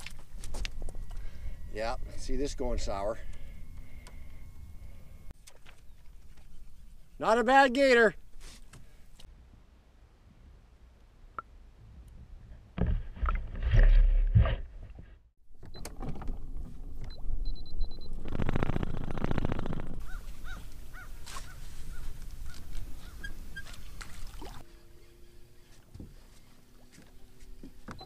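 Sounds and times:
water sloshing and splashing: 20.0s - 24.7s.

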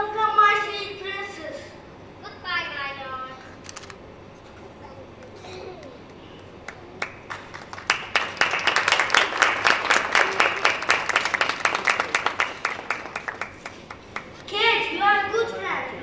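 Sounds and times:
audience applause: 6.6s - 14.4s.

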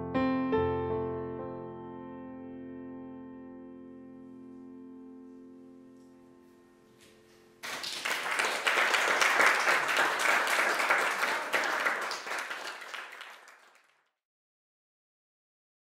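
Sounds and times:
audience applauding: 7.6s - 14.0s.

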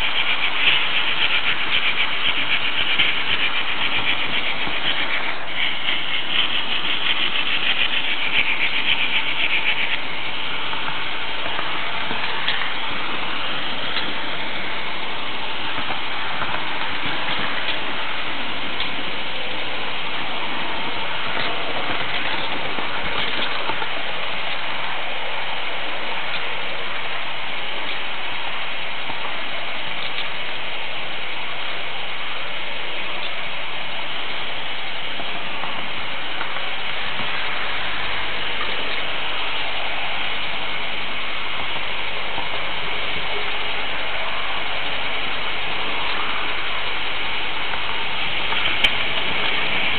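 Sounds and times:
model train wheels whirring: 0.0s - 49.9s
faint clicks: 45.3s - 49.9s.

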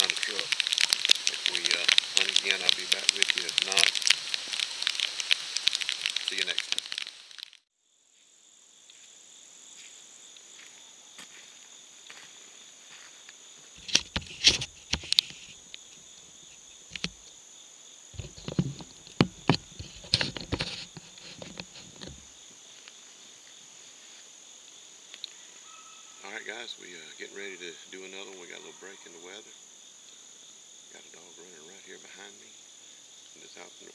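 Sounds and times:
insects droning: 0.0s - 33.9s
sharp knocks and clicks: 18.2s - 22.2s.

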